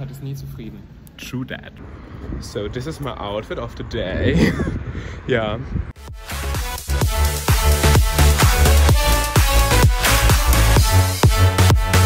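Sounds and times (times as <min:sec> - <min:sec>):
electronic dance music: 0:06.0 - 0:12.0
steady kick drum: 0:06.0 - 0:12.0.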